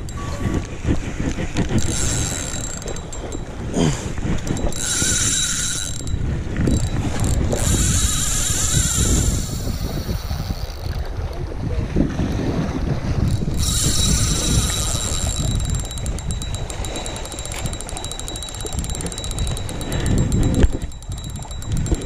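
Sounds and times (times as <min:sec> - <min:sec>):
fishing reel drag buzzing: 0:00.0 - 0:11.1, 0:13.1 - 0:22.0
low rumbling handling noise: 0:13.1 - 0:22.0.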